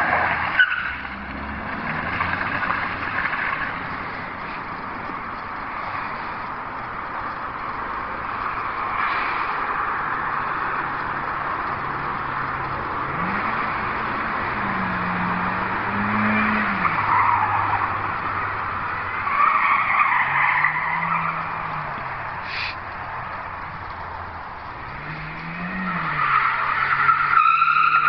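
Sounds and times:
car engine revving: 0:10.1 - 0:28.0
tyres squealing: 0:14.8 - 0:28.0.

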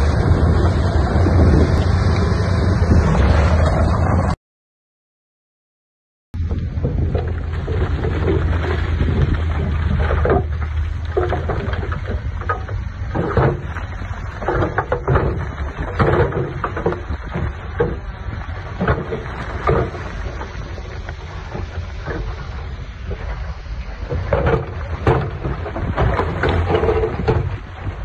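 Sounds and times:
diesel engine running: 0:00.0 - 0:04.4, 0:06.4 - 0:28.0
clanks and clattering knocks: 0:06.4 - 0:20.8, 0:24.1 - 0:27.7.

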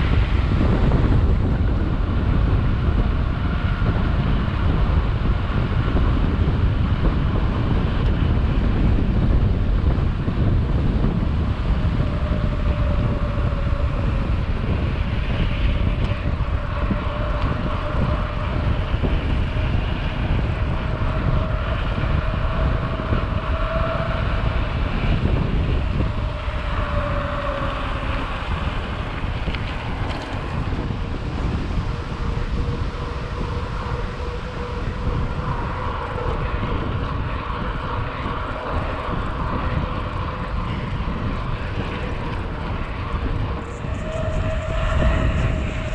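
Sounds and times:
bike tyres rolling on asphalt: 0:00.0 - 0:45.9
faint thin whine: 0:00.0 - 0:45.9
wind rushing over microphone: 0:00.0 - 0:45.9.

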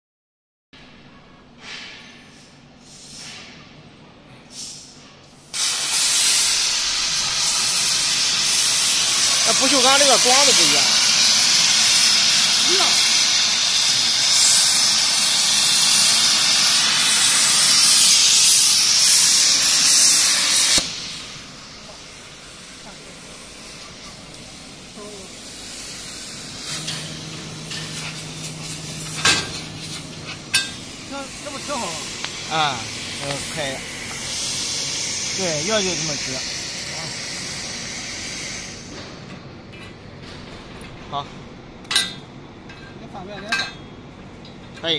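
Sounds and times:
short soft hisses: 0:04.5 - 0:05.0
plasma torch cutting hiss: 0:04.5 - 0:39.2.

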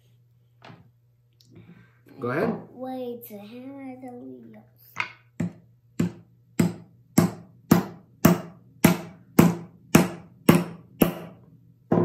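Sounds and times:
hammer driving nail into wood: 0:05.4 - 0:12.0.

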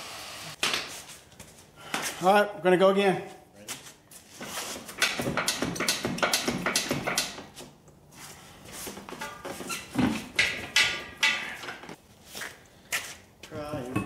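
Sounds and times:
metallic clanks: 0:10.3 - 0:11.9.

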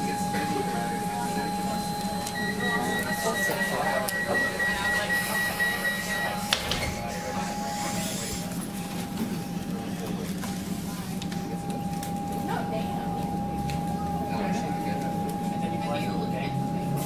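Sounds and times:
high warning tone: 0:00.0 - 0:09.1
electrical whine: 0:00.0 - 0:17.0
train doors shutting: 0:02.0 - 0:09.4.

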